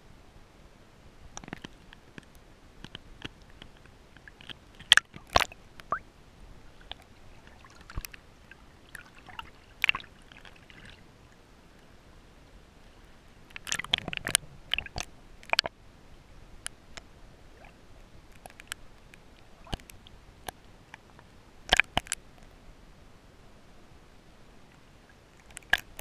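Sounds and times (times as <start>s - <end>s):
water splashing and bubbling: 4.2s - 6.1s, 6.7s - 11.1s, 13.5s - 15.8s, 17.5s - 18.7s, 19.4s - 20.2s
underwater clicks and pops: 4.4s - 6.0s, 13.5s - 15.7s, 19.6s - 20.6s, 21.7s - 22.2s, 25.4s - 26.0s.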